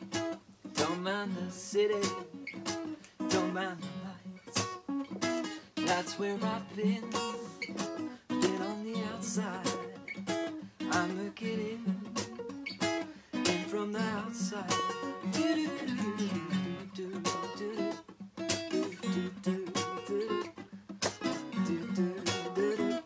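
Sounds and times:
acoustic guitar playing: 0.0 - 23.0
person singing wordless phrases: 0.7 - 2.4, 3.1 - 4.8, 5.8 - 10.1, 10.8 - 12.4, 13.3 - 18.0, 19.0 - 20.6, 21.2 - 23.0.

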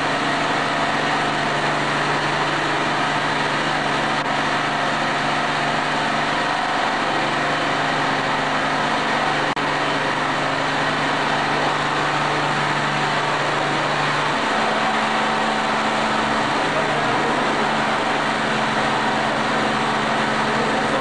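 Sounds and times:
compressor humming: 0.0 - 21.0.

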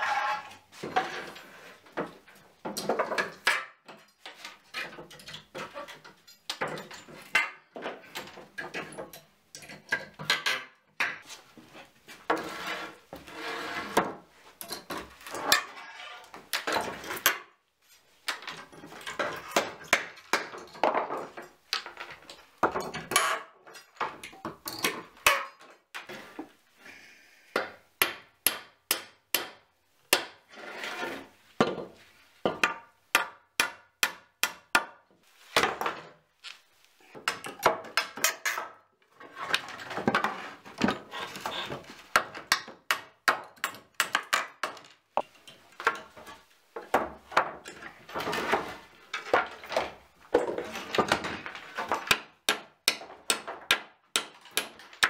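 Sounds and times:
wooden boards clattering and scraping: 0.0 - 9.1, 9.8 - 17.5, 18.3 - 26.6, 37.0 - 42.9, 44.1 - 55.0
knocks of metal and wood: 2.0 - 11.2, 27.6 - 30.4, 31.6 - 36.1, 39.6 - 55.0.

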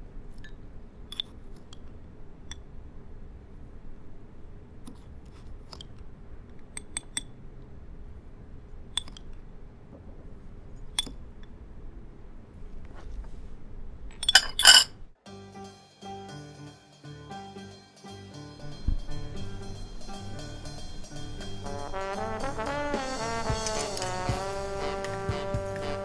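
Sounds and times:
teaspoon clinking in ceramic cup: 14.2 - 14.9
spoon rattling on saucer: 14.2 - 15.0.

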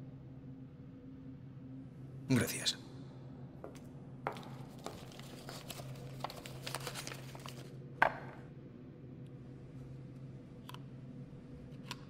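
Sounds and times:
faint low hum: 0.0 - 12.0
paper wrapping tearing and crumpling: 5.0 - 7.7.

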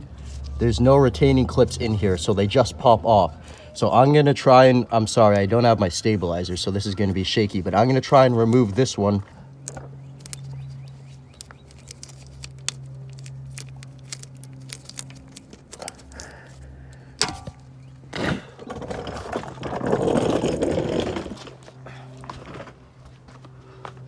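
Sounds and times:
steady low hum: 0.0 - 24.0
rustling handling noise: 8.4 - 17.8.

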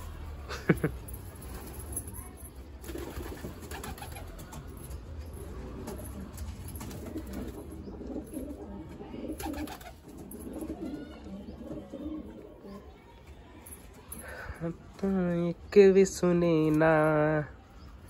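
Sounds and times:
pigeons cooing: 5.3 - 13.0.

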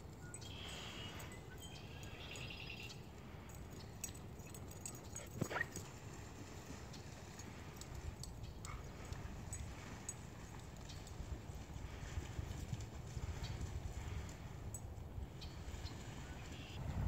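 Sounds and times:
dogs whining: 5.1 - 5.8.

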